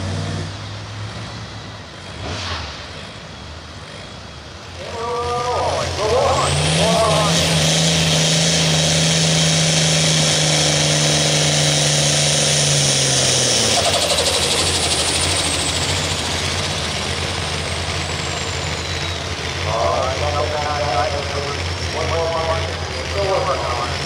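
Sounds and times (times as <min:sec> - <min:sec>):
diesel tractor engine under load: 0:00.0 - 0:24.0.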